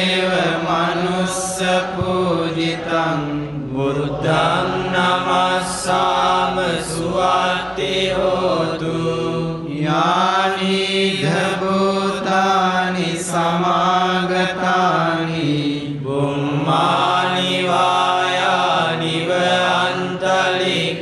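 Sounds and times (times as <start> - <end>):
steady low held tone: 0.0 - 10.2
melodic chanting: 0.0 - 21.0.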